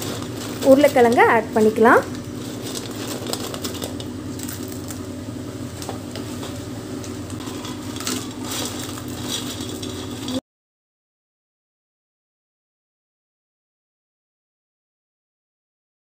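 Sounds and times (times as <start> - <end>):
steady low hum: 0.0 - 10.4
spatula scraping in a pan: 7.4 - 10.4.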